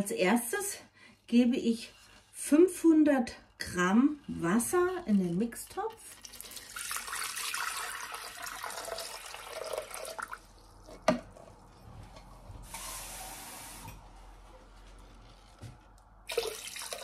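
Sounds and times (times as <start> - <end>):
water pouring into a metal bowl: 6.0 - 10.6, 16.3 - 17.0.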